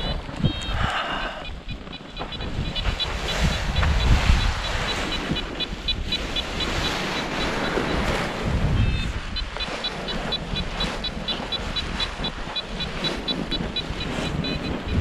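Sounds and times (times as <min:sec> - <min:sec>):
wind buffeting microphone: 0:00.0 - 0:15.0
wing fabric flapping: 0:01.6 - 0:15.0
short high electronic beeps: 0:08.8 - 0:09.1.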